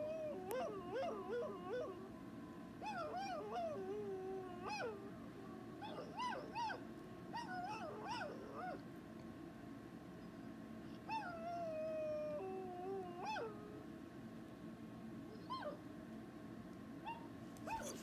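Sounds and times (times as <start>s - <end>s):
dog howling and whining: 0.0s - 8.8s, 11.0s - 13.9s, 15.3s - 15.8s, 17.0s - 18.0s.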